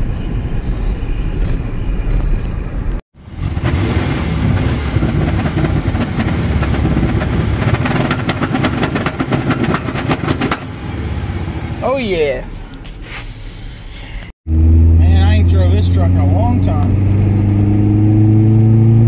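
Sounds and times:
truck engine running: 2.6 - 12.8
fast rattling clatter: 4.4 - 10.7.

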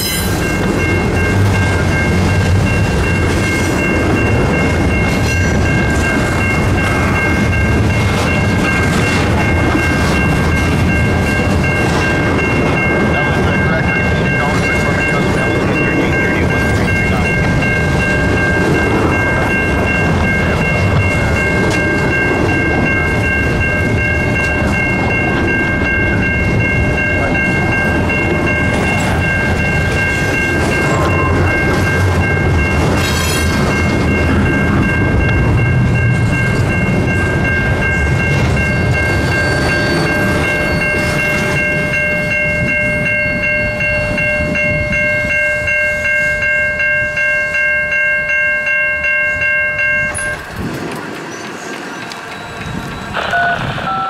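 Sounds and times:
crossing warning bell: 0.0 - 54.0
freight train wheels rumbling on rails: 0.0 - 54.0.

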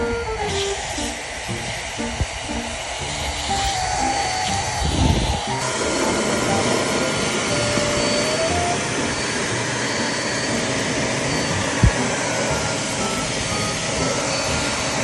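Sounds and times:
handheld vacuum cleaner running: 0.0 - 15.0.

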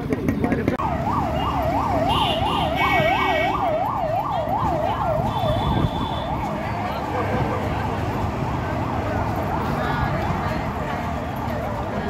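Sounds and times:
street noise: 0.0 - 12.0
emergency siren yelping: 0.8 - 7.2.

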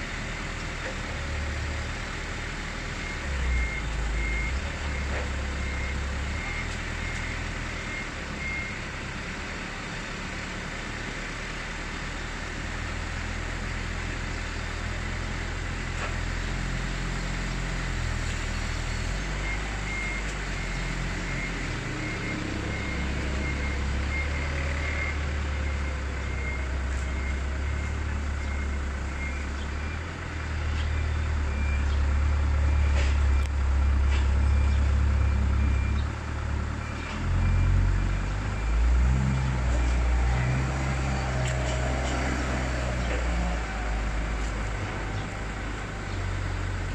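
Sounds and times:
low vehicle engine rumble: 0.0 - 46.9
high-pitched reversing alarm beeps: 2.9 - 9.0, 18.3 - 36.1.

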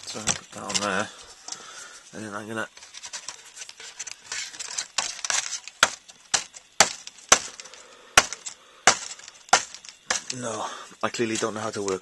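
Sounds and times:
sharp knocks: 5.0 - 10.4.

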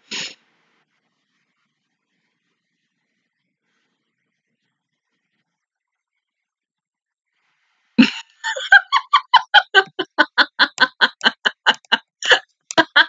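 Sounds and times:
woman laughing hard: 8.0 - 13.0.

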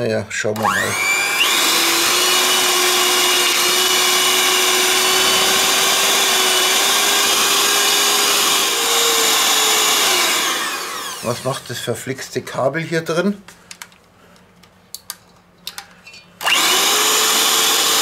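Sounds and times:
electric hand mixer whine: 0.6 - 11.7, 16.4 - 18.0.

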